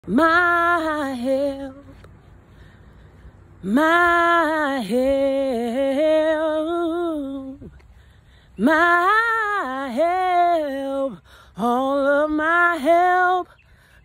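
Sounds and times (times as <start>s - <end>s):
woman singing unaccompanied: 0.0s - 2.5s, 3.2s - 14.0s
singer's breath: 7.8s - 8.6s.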